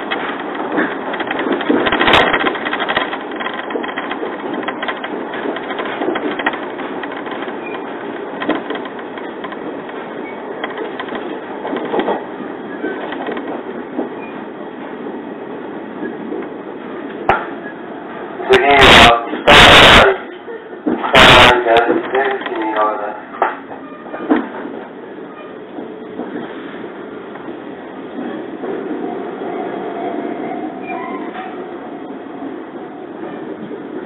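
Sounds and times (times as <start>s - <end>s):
wheel and track knocks: 0.0s - 14.1s
train running rumble: 0.0s - 34.0s.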